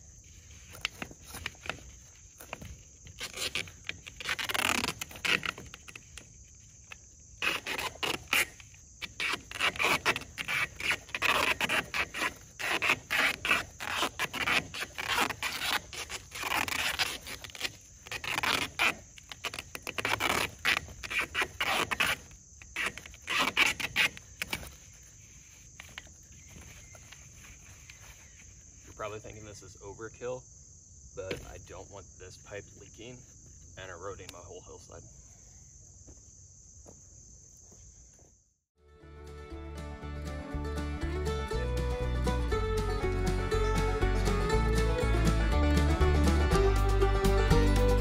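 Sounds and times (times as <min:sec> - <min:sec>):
crickets chirping: 0:00.0 - 0:38.6
duct tape ripping off roll: 0:00.5 - 0:25.0.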